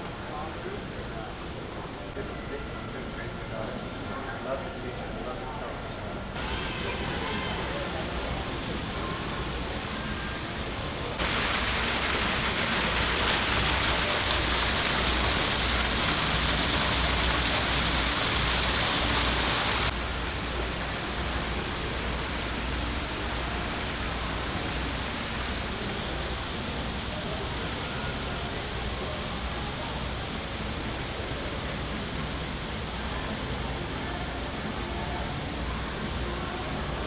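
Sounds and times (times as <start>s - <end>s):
water splashing into a pool: 11.1s - 28.9s.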